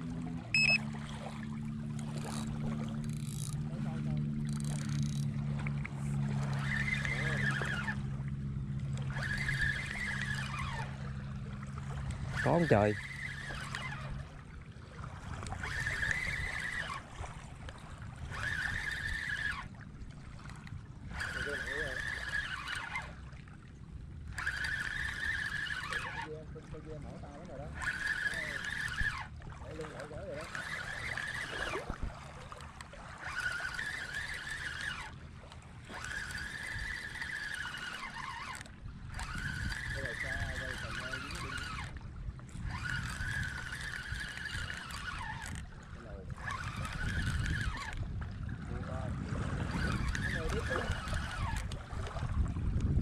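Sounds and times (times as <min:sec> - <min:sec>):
spinning reel whirring: 0:00.0 - 0:14.5, 0:15.2 - 0:53.0.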